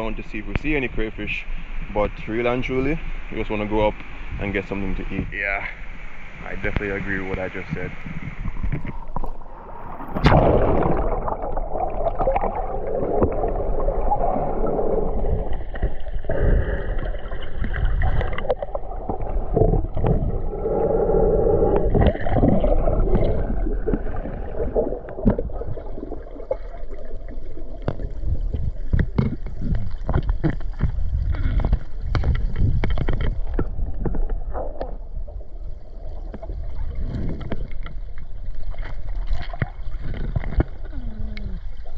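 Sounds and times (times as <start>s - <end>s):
underwater rushing and gurgling: 0.0s - 41.9s
clicks and knocks underwater: 3.9s - 5.7s, 6.5s - 20.9s, 21.6s - 41.9s
diver splashing into water: 10.0s - 12.7s.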